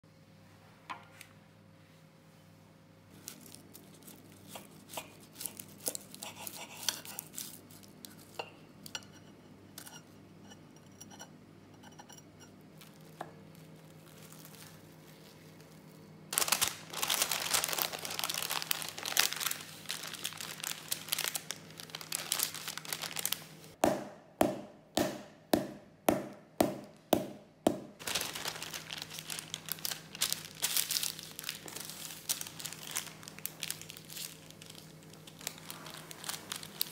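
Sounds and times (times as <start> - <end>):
baking paper crinkling: 3.1 - 8.4, 12.8 - 23.8, 28.0 - 36.9.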